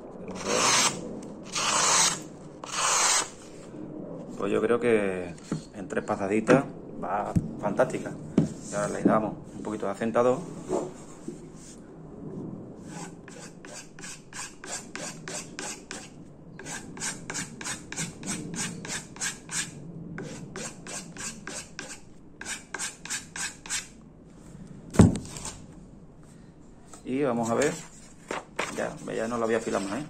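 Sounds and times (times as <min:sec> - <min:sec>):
knife blade rubbing on wooden strop: 0:00.3 - 0:03.4, 0:12.9 - 0:23.9.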